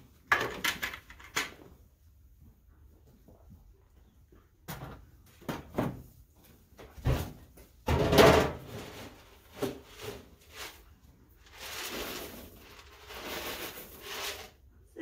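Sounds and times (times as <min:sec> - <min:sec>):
scraping rattle of containers: 0:07.9 - 0:14.6.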